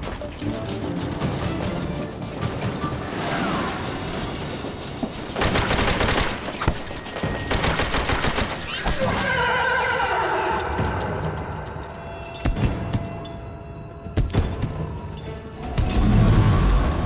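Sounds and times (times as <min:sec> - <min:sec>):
automatic gunfire bursts: 0:05.4 - 0:06.5, 0:07.5 - 0:08.9.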